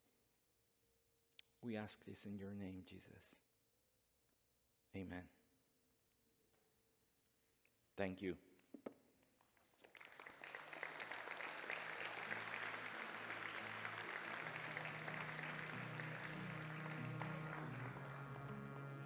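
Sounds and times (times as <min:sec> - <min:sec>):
audience applauding: 0:09.8 - 0:19.0.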